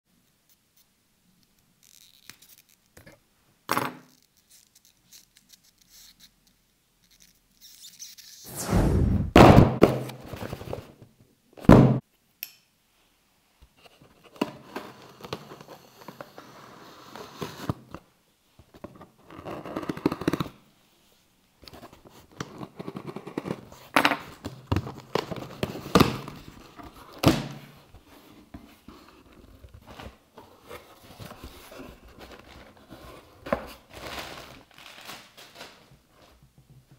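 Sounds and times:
packing tape peeling and tearing: 0:01.8 - 0:02.9, 0:04.1 - 0:06.4, 0:33.9 - 0:35.8
plastic packaging crinkling: 0:33.8 - 0:36.0.

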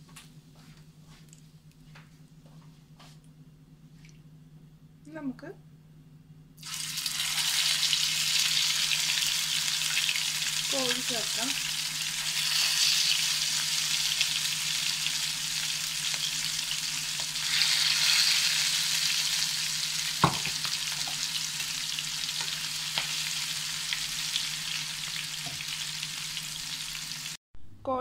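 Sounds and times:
chicken frying in hot oil: 0:06.6 - 0:27.4.

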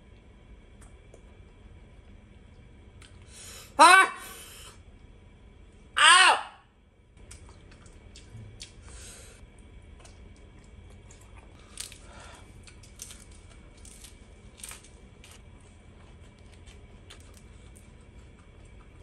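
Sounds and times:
steady low hum: 0:00.0 - 0:19.0
crunching raw vegetables: 0:07.2 - 0:19.0.

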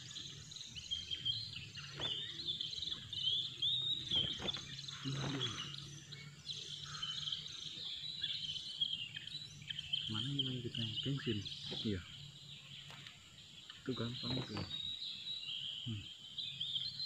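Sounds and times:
birds singing chirps and whistles: 0:00.0 - 0:17.0
bird fluttering on grass: 0:04.1 - 0:05.5.

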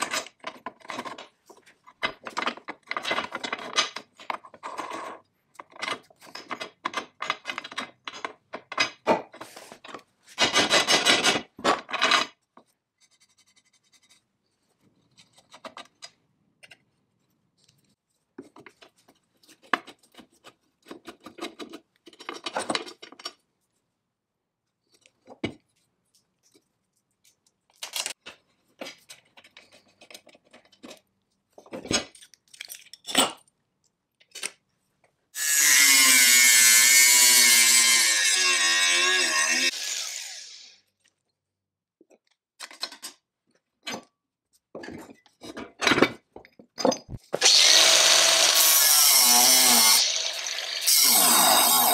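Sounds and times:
metal fittings clinking and scraping: 0:31.6 - 0:33.4.

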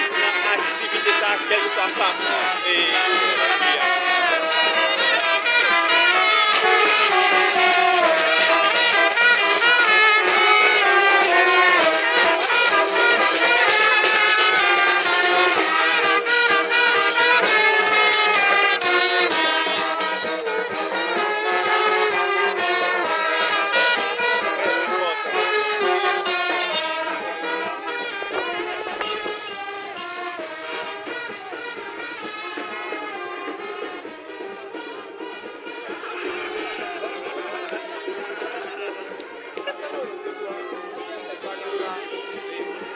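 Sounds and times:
marching brass band playing: 0:00.0 - 0:42.9.

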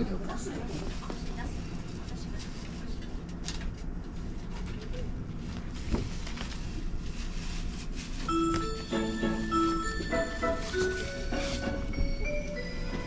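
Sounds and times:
train carriage rumble: 0:00.0 - 0:13.0
chime of clear notes: 0:08.3 - 0:13.0.

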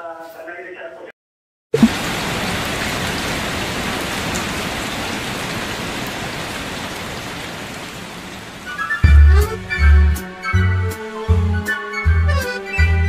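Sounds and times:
steady rain falling: 0:01.8 - 0:10.5.

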